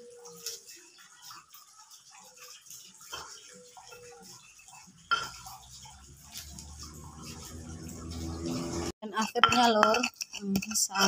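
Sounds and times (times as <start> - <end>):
stone pestle grinding in mortar: 6.2 - 11.0.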